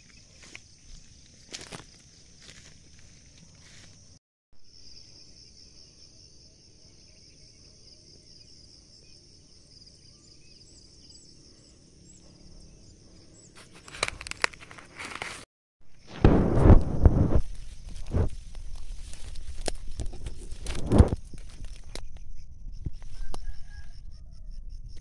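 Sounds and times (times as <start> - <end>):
dry corn husks rustling: 0.0 - 4.1, 13.6 - 22.2
insects droning: 0.0 - 15.2, 15.9 - 25.0.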